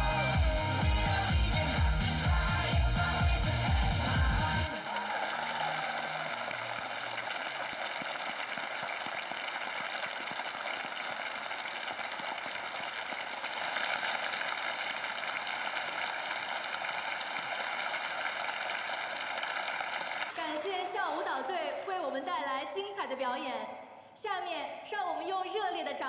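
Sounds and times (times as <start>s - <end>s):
dance music: 0.0s - 7.2s
audience applause: 3.8s - 22.1s.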